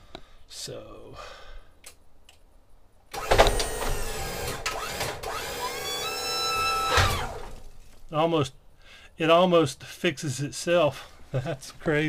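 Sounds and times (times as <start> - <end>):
lift motor whining: 3.1 - 7.7.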